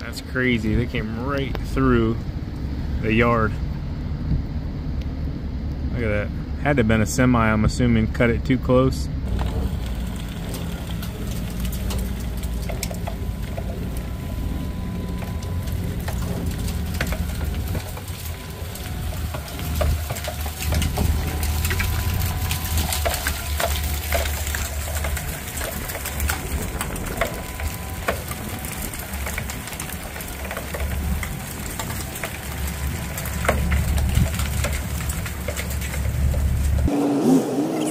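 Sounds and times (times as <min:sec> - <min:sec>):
faint steady whine: 0:00.0 - 0:36.7
truck engine humming: 0:00.0 - 0:36.9
salt pellets pattering on ground: 0:09.3 - 0:36.9.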